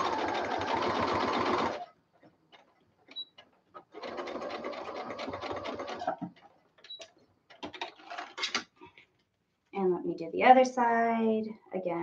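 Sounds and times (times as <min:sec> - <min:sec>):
electric sewing machine stitching: 0:00.0 - 0:01.9, 0:03.8 - 0:06.3.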